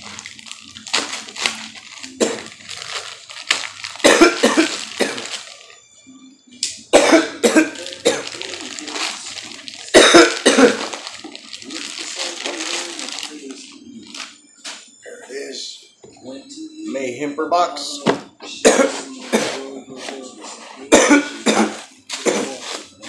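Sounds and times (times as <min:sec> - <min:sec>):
plastic bag rustling: 0:00.0 - 0:05.8, 0:07.6 - 0:14.8, 0:21.7 - 0:23.0
man coughing: 0:04.0 - 0:05.3, 0:06.9 - 0:08.4, 0:09.9 - 0:10.9, 0:18.6 - 0:19.6, 0:20.9 - 0:22.6.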